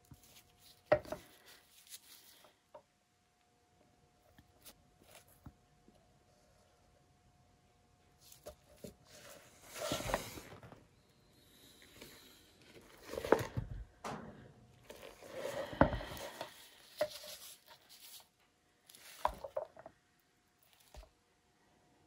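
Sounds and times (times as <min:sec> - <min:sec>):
canvas board scraping and knocking: 0:08.8 - 0:10.8, 0:14.9 - 0:17.7.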